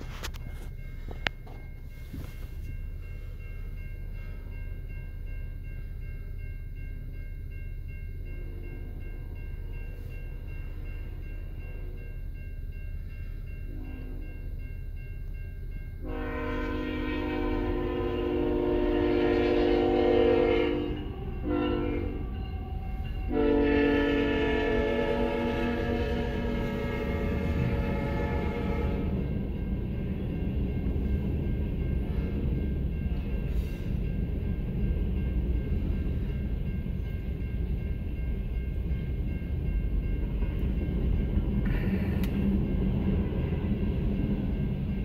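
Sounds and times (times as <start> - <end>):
low train rumble: 0.0 - 45.0
locomotive horn blasts: 13.7 - 14.5, 16.0 - 29.3.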